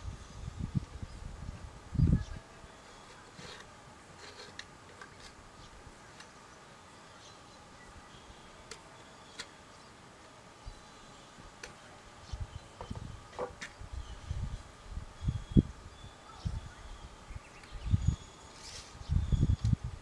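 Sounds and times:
knife shaving wood: 0:03.1 - 0:05.4.

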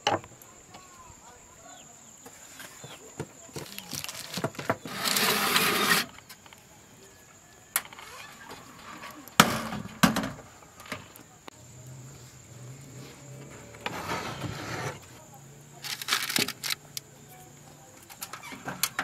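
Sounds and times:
baking tray scraping onto oven rack: 0:04.7 - 0:06.2, 0:13.0 - 0:15.1.

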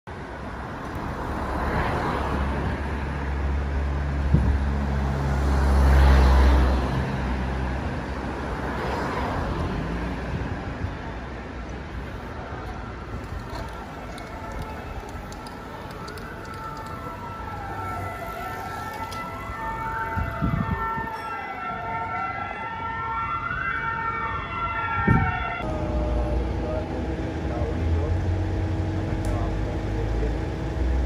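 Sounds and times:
vehicles passing: 0:00.1 - 0:31.0
heavy engine deep hum: 0:25.6 - 0:31.0.

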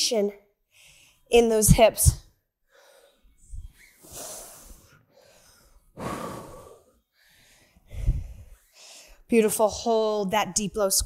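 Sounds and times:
woman breathing softly: 0:02.6 - 0:09.3.

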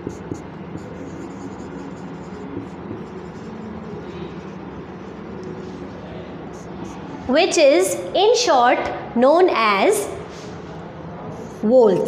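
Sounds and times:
marker writing on a whiteboard: 0:00.0 - 0:07.4, 0:11.3 - 0:12.0.

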